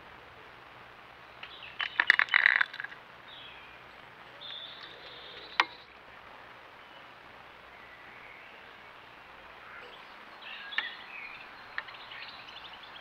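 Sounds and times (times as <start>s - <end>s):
metal tin clattering on logs: 1.8s - 3.0s
faint high bird calls: 3.3s - 6.0s, 6.8s - 13.0s.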